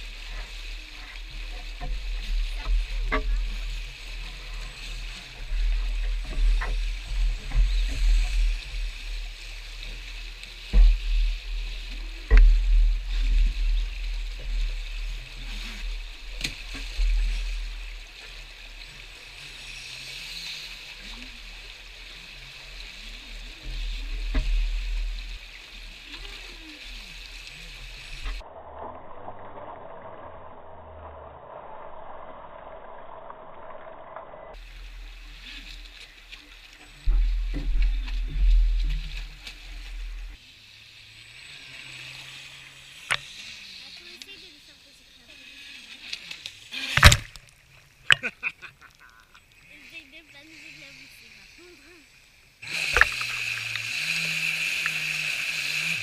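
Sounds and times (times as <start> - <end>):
rushing stream water: 0.0 - 28.4, 46.1 - 56.0.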